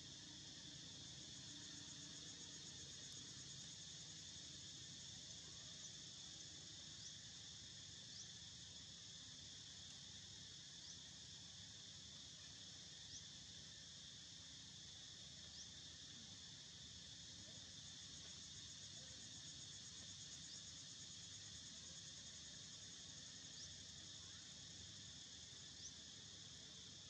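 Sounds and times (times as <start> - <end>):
high-pitched insect chorus: 0.0 - 27.0
rising insect chirps: 0.1 - 27.0.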